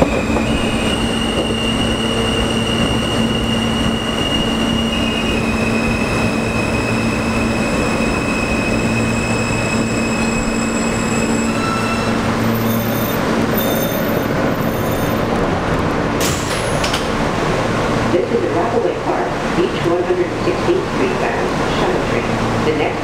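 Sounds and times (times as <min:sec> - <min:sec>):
train wheels on rails: 0:00.0 - 0:18.0.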